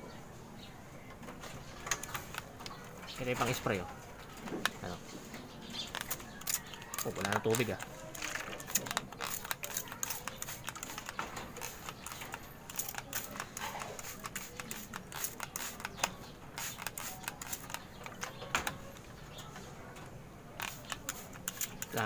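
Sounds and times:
pigeons clicking on wire mesh: 5.8s - 19.5s.

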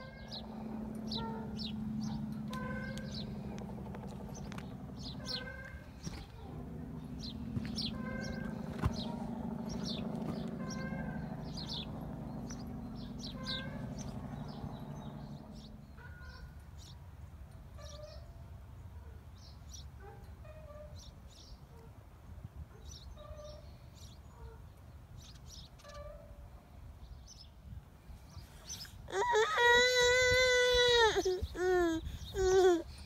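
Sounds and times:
low hum: 0.0s - 16.6s
birds calling: 0.0s - 17.0s, 28.4s - 33.0s.

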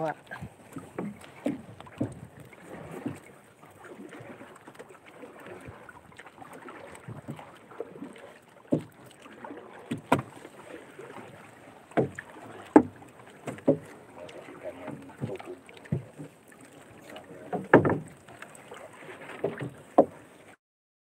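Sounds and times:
fishing net dragging over hull: 0.0s - 20.6s
knocks against boat: 0.7s - 3.2s, 8.7s - 9.0s, 9.9s - 10.5s, 11.9s - 13.9s, 14.9s - 16.3s, 17.1s - 18.2s, 19.3s - 20.2s.

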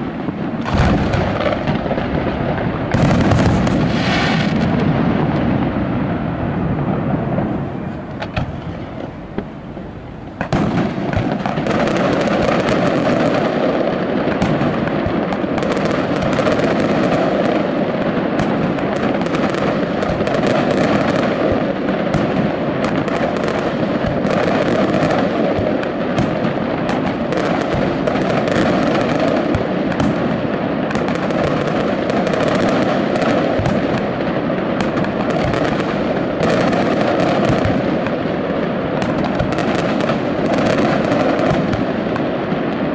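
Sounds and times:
fireworks bangs and crackles: 0.0s - 42.9s
fireworks rumble: 0.0s - 42.9s.

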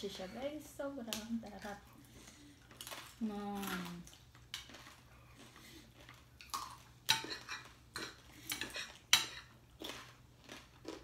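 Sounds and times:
plates and cutlery clinking: 7.1s - 9.6s.

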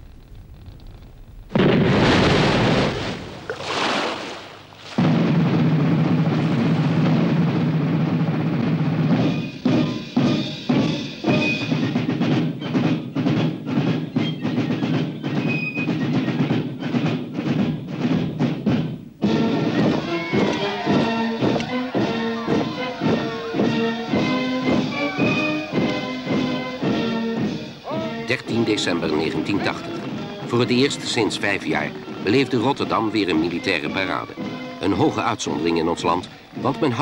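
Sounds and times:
repeated drum beats: 4.8s - 37.0s
title music with heavy drums: 5.0s - 33.3s.

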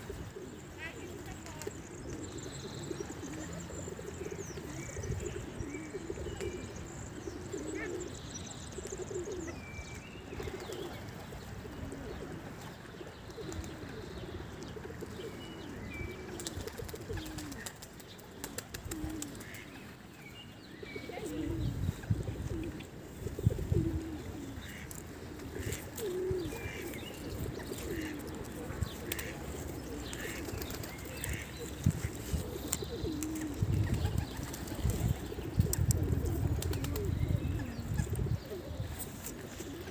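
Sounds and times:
doves cooing: 0.0s - 9.6s, 10.2s - 20.2s, 20.8s - 39.9s
small birds chirping: 0.0s - 39.9s.

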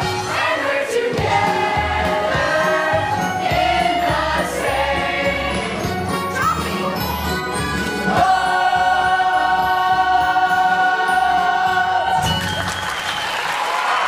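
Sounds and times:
choir singing held chord: 0.0s - 5.9s, 8.1s - 12.3s
audience applause: 12.2s - 14.0s.

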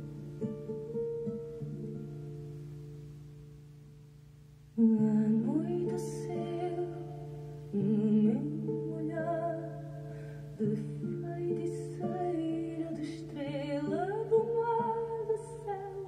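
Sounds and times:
guitar playing chords: 0.0s - 16.0s
person singing: 4.8s - 16.0s.

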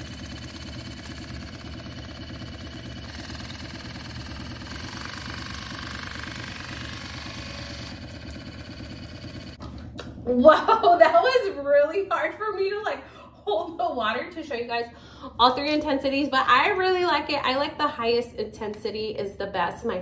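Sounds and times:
water flosser pump buzzing: 0.0s - 10.2s.

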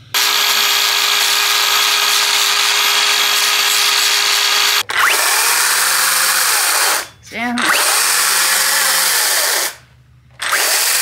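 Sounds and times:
angle grinder sanding metal chain: 0.1s - 4.8s.

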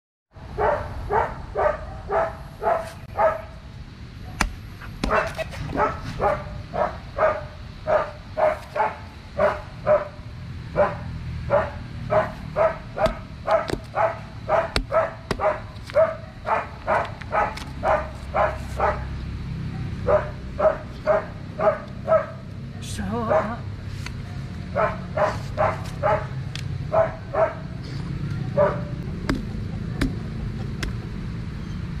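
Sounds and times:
dog barking: 0.5s - 3.6s, 4.8s - 19.2s, 20.0s - 22.4s, 23.2s - 23.6s, 24.7s - 27.8s, 28.4s - 29.0s.

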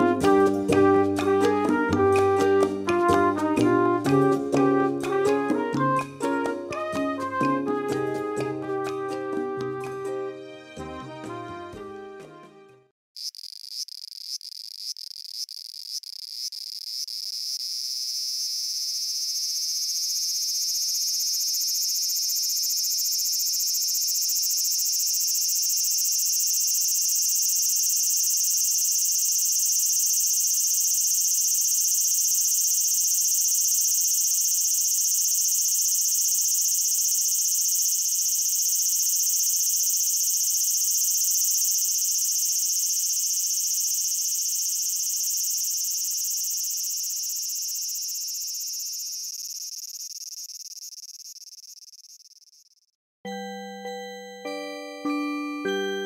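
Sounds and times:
cicada buzzing drone: 13.2s - 52.8s.

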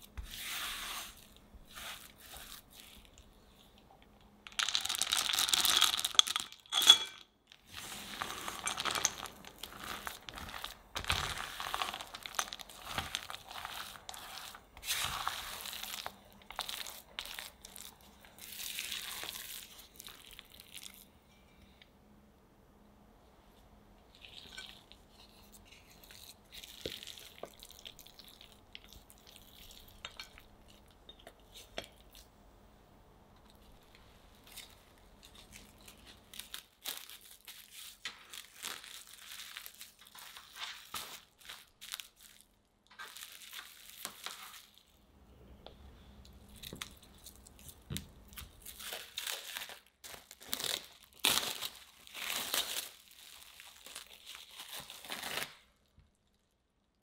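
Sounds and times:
plastic cling film crinkling: 4.5s - 6.8s, 7.5s - 21.1s, 24.2s - 32.3s, 33.5s - 45.0s, 46.4s - 56.4s.

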